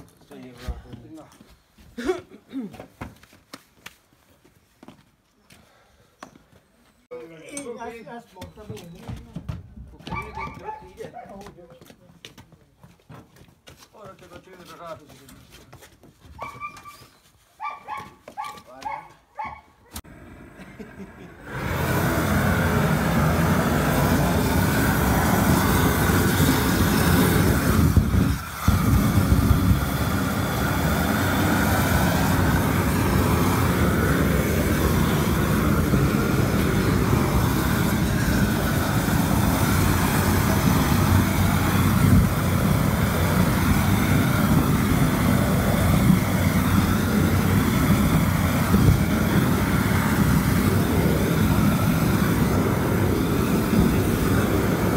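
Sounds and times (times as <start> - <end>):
gas torch roaring: 20.0 - 54.9.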